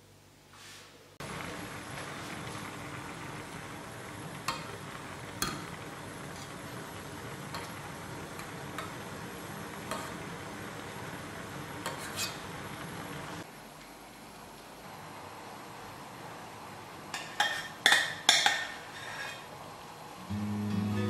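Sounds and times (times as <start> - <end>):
syrup bubbling in a saucepan: 1.2 - 13.5.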